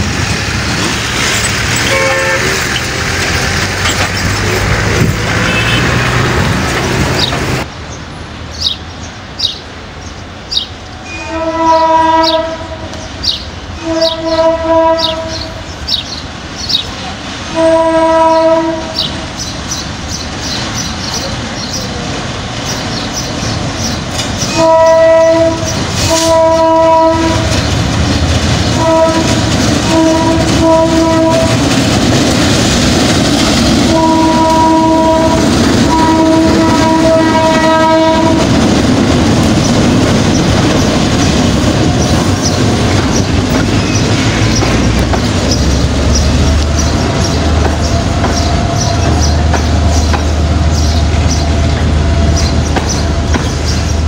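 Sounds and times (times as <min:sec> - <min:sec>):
wheels clacking over rail joints: 0:00.0 - 0:07.7, 0:19.0 - 0:54.0
locomotive horn blasts: 0:01.8 - 0:02.8, 0:05.4 - 0:06.3, 0:11.0 - 0:13.0, 0:13.8 - 0:15.6, 0:17.5 - 0:19.1, 0:24.4 - 0:27.6, 0:28.7 - 0:31.6, 0:33.9 - 0:38.5.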